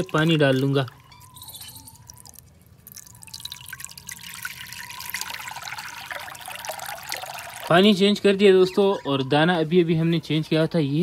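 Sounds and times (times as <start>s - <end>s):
water pouring into a bowl: 0.0s - 7.9s.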